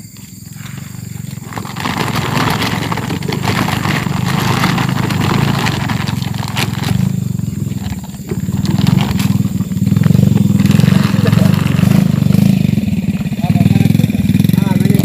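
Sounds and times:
fruit clattering into sack: 0.1s - 13.4s.

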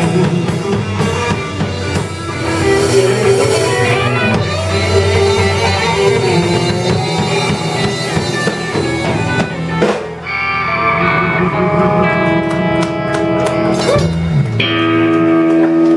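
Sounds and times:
blues band playing: 0.0s - 15.9s
low sliding note: 2.0s - 9.7s.

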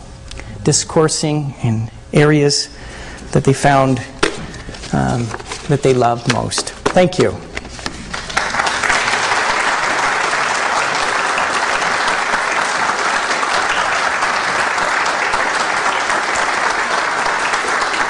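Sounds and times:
audience applauding: 8.0s - 18.0s.

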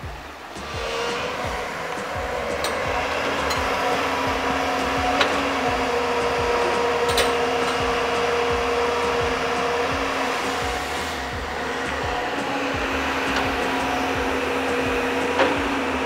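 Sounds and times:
excavator diesel engine running: 0.0s - 16.0s.

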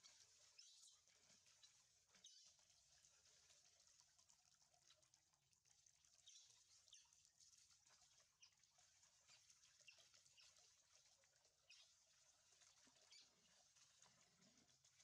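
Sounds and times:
running water hiss: 6.2s - 15.0s.

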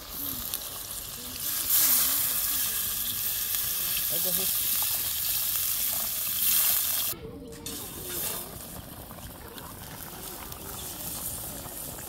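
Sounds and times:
food sizzling in hot oil: 0.0s - 8.8s.

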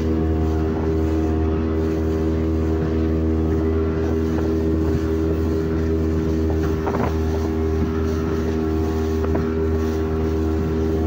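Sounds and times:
motorboat engine humming: 0.0s - 11.0s.

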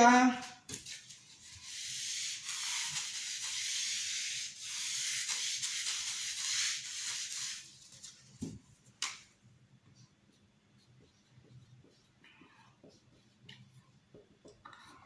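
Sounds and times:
eraser rubbing on whiteboard: 0.7s - 8.2s, 9.9s - 14.3s.

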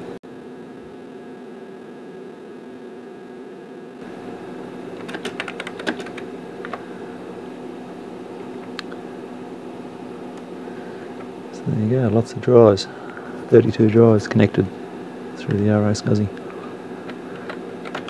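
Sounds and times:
steady hum: 0.0s - 18.0s
keyboard typing: 4.9s - 6.8s, 17.1s - 18.0s.

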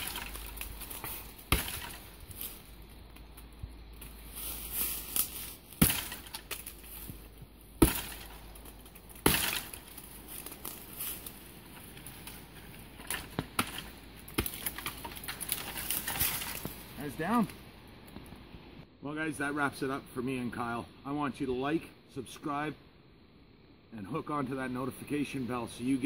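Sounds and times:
axe chopping into tree trunk: 0.0s - 2.5s, 5.2s - 7.2s, 7.8s - 10.8s, 13.0s - 16.7s
tree cracking and snapping: 0.0s - 17.6s.

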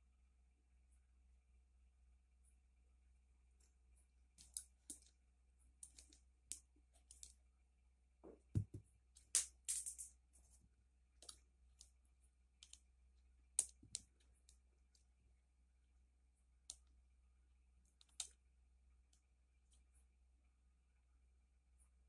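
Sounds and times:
dull stone knock: 8.2s - 8.9s.

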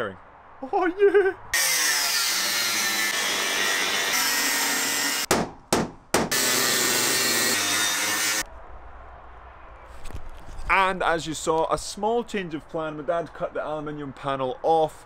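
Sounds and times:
angle grinder cutting metal: 1.6s - 5.3s, 6.3s - 8.4s.

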